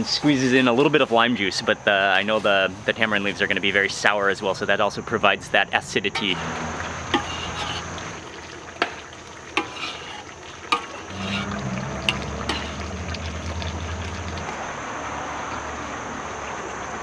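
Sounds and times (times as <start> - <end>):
steady hiss: 0.0 - 11.5
metal utensils clinking on pots: 7.1 - 7.9, 9.6 - 12.8
low hum: 11.1 - 17.0.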